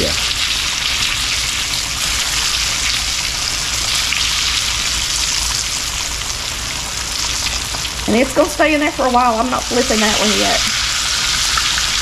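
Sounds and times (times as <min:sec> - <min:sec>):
chicken frying in a skillet: 0:00.0 - 0:12.0.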